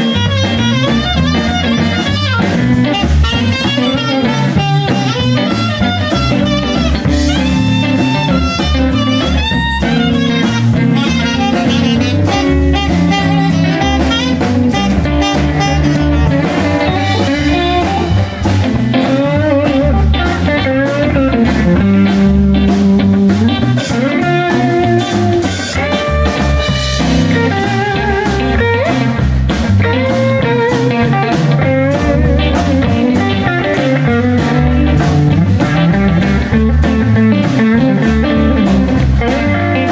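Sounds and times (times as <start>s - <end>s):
bass guitar: 0.0s - 39.9s
drum kit: 0.0s - 39.9s
electric guitar lead: 0.0s - 39.9s.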